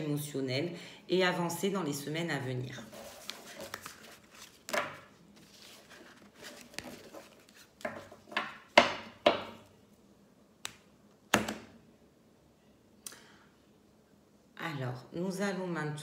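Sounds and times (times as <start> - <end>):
cards tapping and slapping: 3.2 - 5.0.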